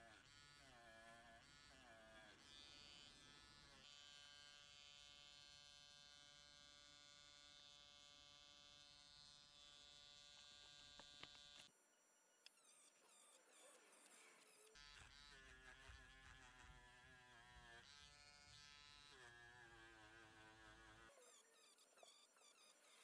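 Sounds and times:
rotary tool polishing metal: 12.4 - 23.0.

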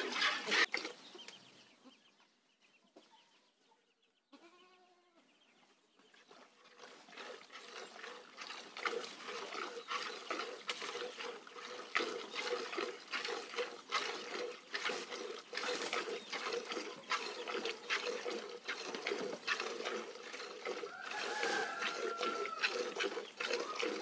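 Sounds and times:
milk squirting into a pot: 6.8 - 24.0
animal call: 20.8 - 24.0.

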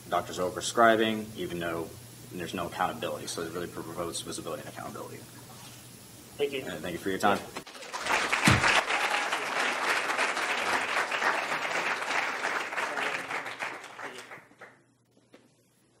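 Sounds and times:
audience applauding: 7.7 - 14.8.

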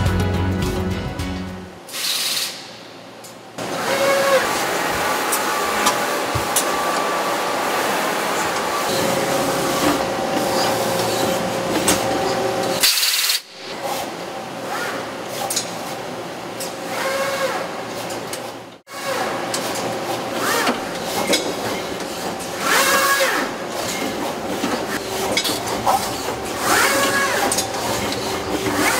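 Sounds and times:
machine mechanical hum: 1.3 - 28.9
rising servo whines: 3.6 - 7.6.

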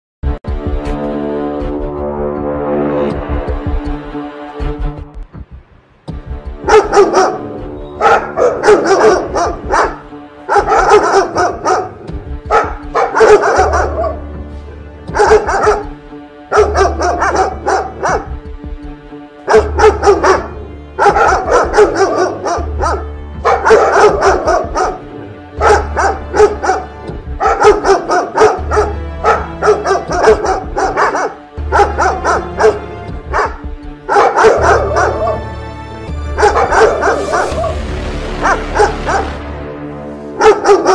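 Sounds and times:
music with steady drone: 0.2 - 40.9
dogs barking: 6.6 - 14.4, 15.0 - 18.5, 19.4 - 37.8, 38.4 - 39.4, 40.3 - 40.9
deep bass pulse: 34.6 - 40.3.

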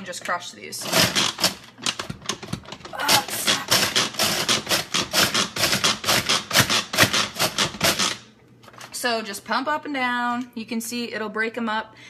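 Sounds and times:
food processor plunger clacking: 0.9 - 8.2
blades chopping cookies: 3.0 - 8.2.

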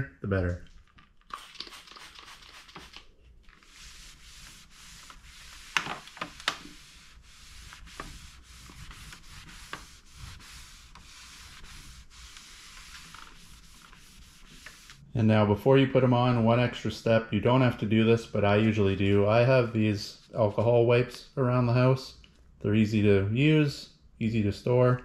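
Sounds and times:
spray bottle sprays: 1.3 - 7.2
cloth rubbing on textured plastic: 1.4 - 15.1.

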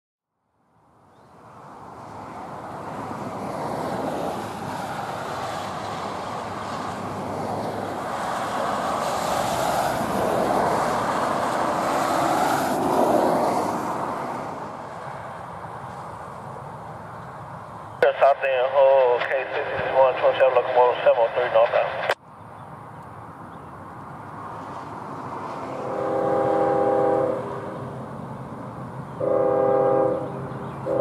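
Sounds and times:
traffic tyre hiss on wet road: 1.8 - 16.8.

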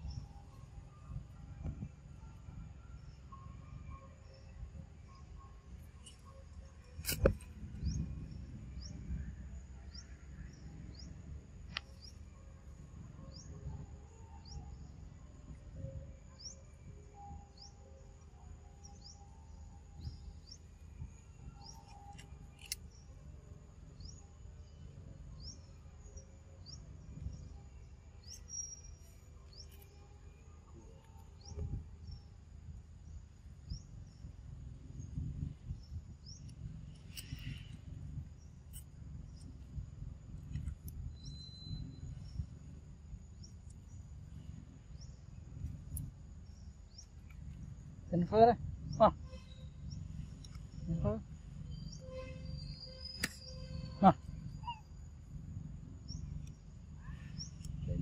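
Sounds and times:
sharp clicks: 21.7 - 23.0, 53.2 - 53.5
bird chirping: 25.4 - 30.0, 40.5 - 42.6, 46.0 - 55.1
low rumble: 31.2 - 58.0.

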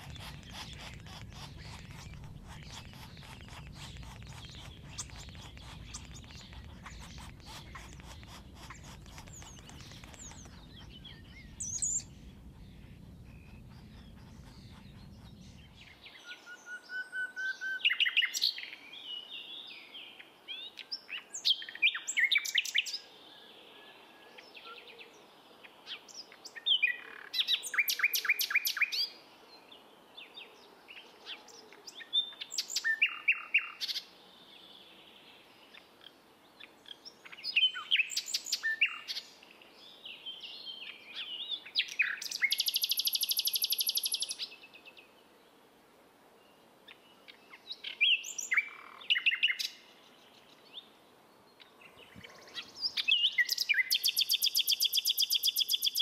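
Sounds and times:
nightingale singing: 0.0 - 18.6, 40.6 - 44.6, 51.9 - 56.0.

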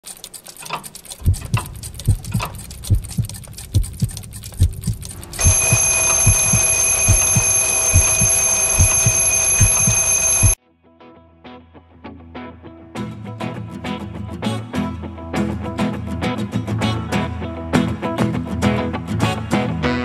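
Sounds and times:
alarm clock ticking: 0.0 - 10.6
alarm clock ringing: 4.8 - 10.6.

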